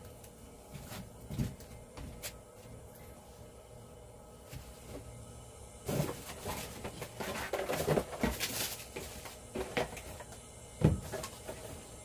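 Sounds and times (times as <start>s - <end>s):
equipment being handled: 5.9s - 10.3s.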